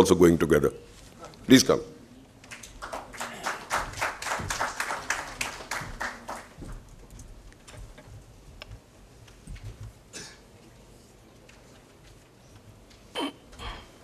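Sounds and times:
audience applause: 2.5 - 6.8.

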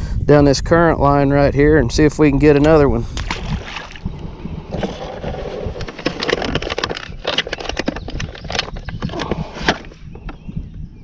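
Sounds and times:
fishing tackle clicking and rustling: 4.7 - 10.4.

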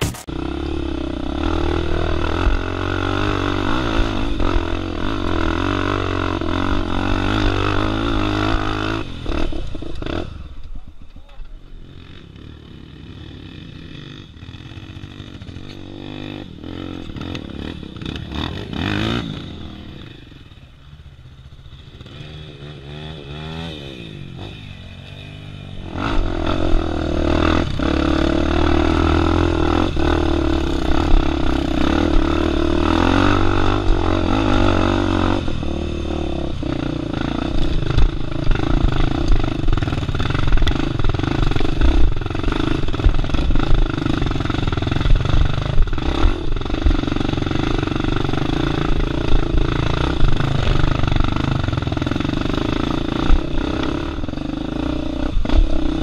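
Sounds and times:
dirt bike engine revving: 0.0 - 10.6, 11.8 - 20.8, 21.4 - 56.0.

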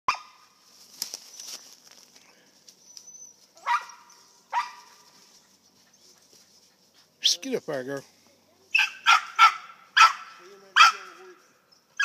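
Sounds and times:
dogs barking: 3.6 - 7.3, 8.7 - 11.3.

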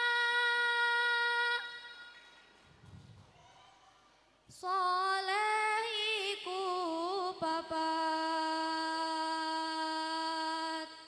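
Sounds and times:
girl singing unaccompanied: 0.0 - 2.0, 4.5 - 11.0.

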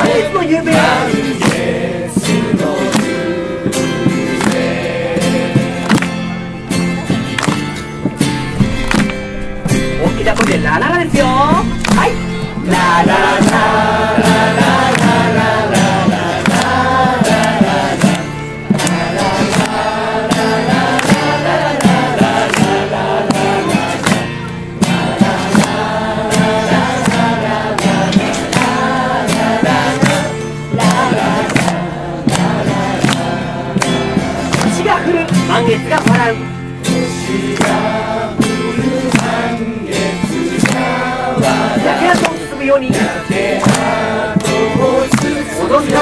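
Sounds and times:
crowd singing: 0.0 - 46.0
hand claps: 0.8 - 46.0.

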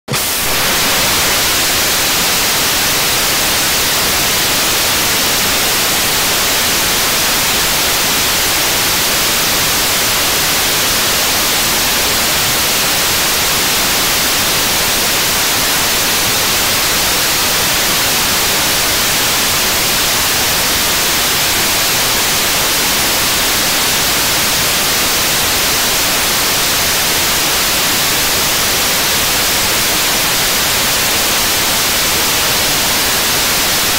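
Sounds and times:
rocket engine roaring hiss: 0.1 - 9.1.

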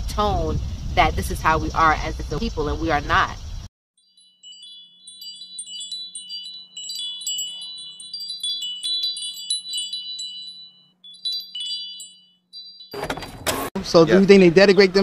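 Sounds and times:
tinkling chimes: 4.0 - 13.3.

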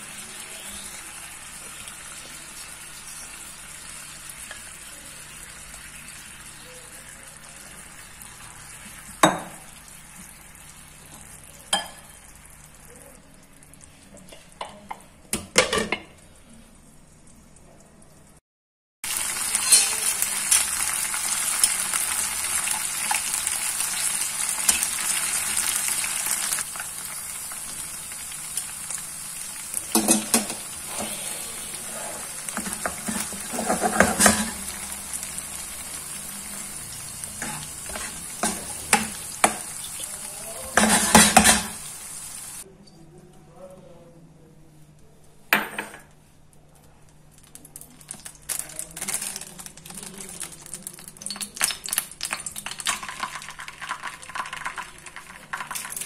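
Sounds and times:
chicken sizzling in oil: 0.0 - 14.1, 19.0 - 42.6, 48.2 - 56.0
metal tongs clinking against pan: 19.6 - 20.7
spatula stirring in frying pan: 29.9 - 42.6.

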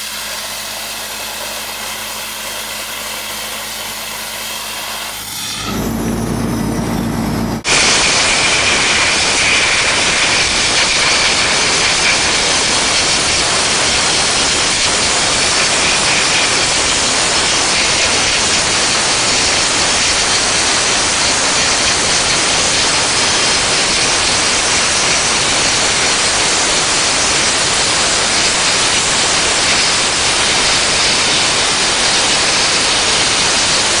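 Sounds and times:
low hum: 4.8 - 8.8.

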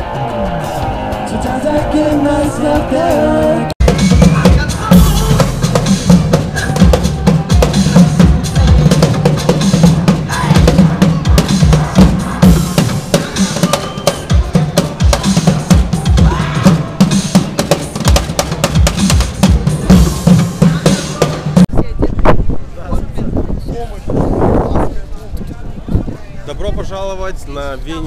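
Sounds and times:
drum kit playing fast beat: 0.6 - 21.7.

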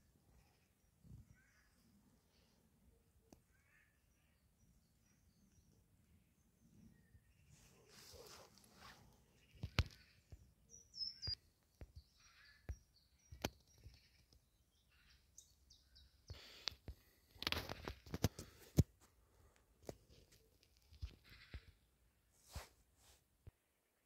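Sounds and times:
bird chirps: 3.4 - 16.6.

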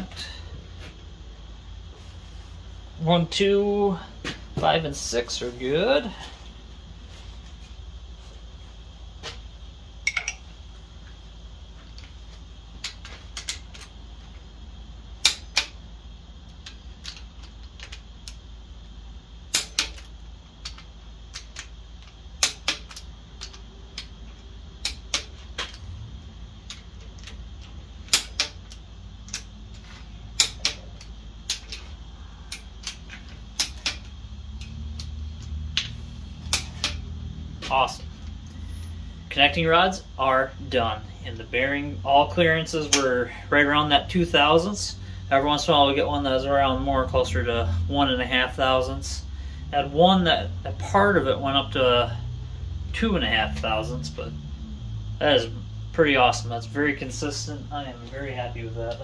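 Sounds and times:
low background hum: 0.0 - 59.0
metallic tool clicks: 28.1 - 29.5, 32.5 - 35.9.

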